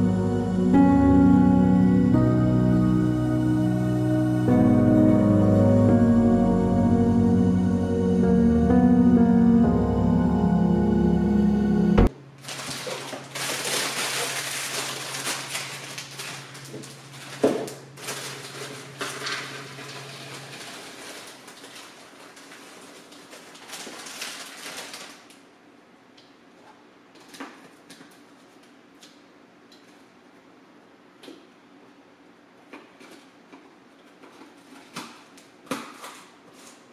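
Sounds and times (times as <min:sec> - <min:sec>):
low steady hum: 0:00.0 - 0:23.3.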